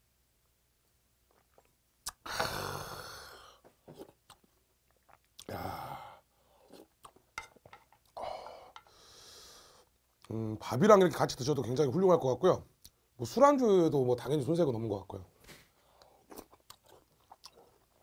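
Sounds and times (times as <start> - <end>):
man exhaling loudly: 2.2 - 3.6
chewing: 16.0 - 18.0.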